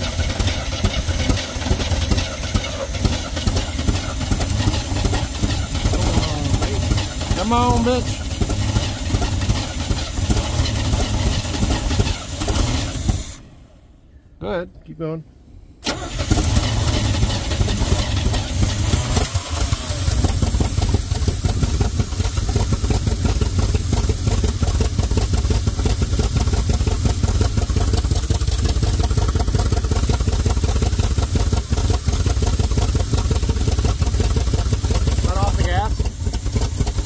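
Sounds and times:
truck engine running: 0:00.0 - 0:13.6, 0:15.8 - 0:37.0.

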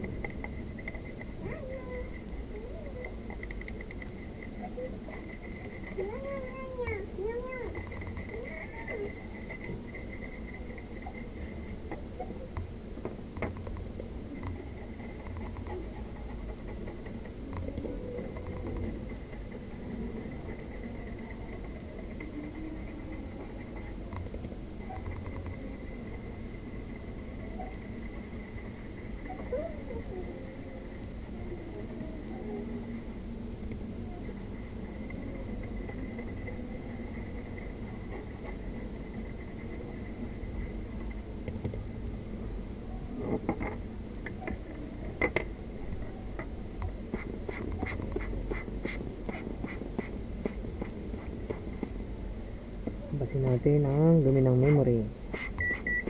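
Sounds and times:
cotton swab scrubbing circuit board: 0:00.0 - 0:11.8, 0:14.4 - 0:41.3, 0:47.1 - 0:52.2, 0:53.2 - 0:56.0
sharp clicks and knocks: 0:03.0 - 0:04.2, 0:12.6 - 0:14.6, 0:24.1 - 0:25.5, 0:41.4 - 0:41.8.

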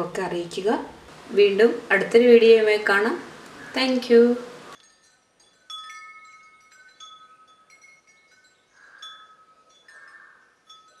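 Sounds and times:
wind chimes ringing: 0:04.8 - 0:11.0.

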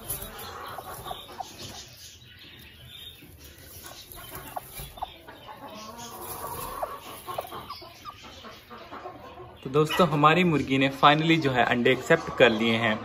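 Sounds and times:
chicken clucking faintly: 0:00.0 - 0:13.0.

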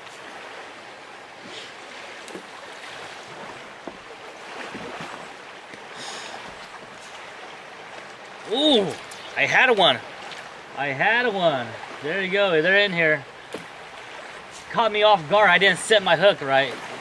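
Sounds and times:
fast-flowing river rushing: 0:00.0 - 0:17.0.

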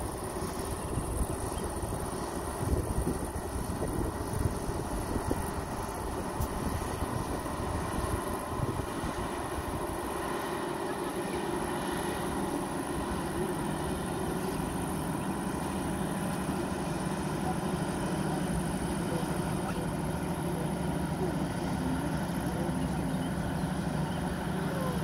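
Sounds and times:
diesel engine droning: 0:00.0 - 0:25.0
wind rumbling on microphone: 0:00.5 - 0:10.0.

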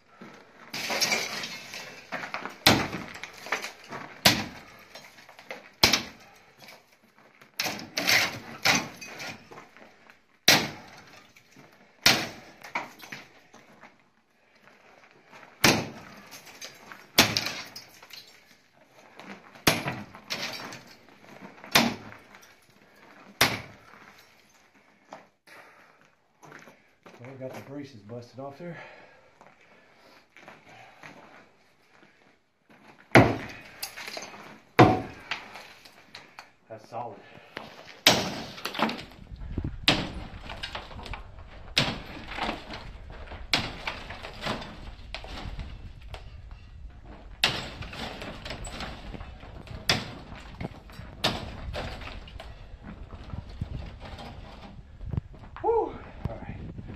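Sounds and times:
debris rattling: 0:00.0 - 0:13.9, 0:14.6 - 0:25.2, 0:32.8 - 0:36.5, 0:37.4 - 0:55.6
sharp demolition knocks: 0:00.7 - 0:05.1, 0:05.8 - 0:06.3, 0:07.6 - 0:09.4, 0:10.4 - 0:11.2, 0:12.0 - 0:13.0, 0:15.6 - 0:18.1, 0:21.7 - 0:22.2, 0:33.1 - 0:33.6, 0:34.8 - 0:35.3, 0:38.0 - 0:46.4, 0:47.3 - 0:54.8.

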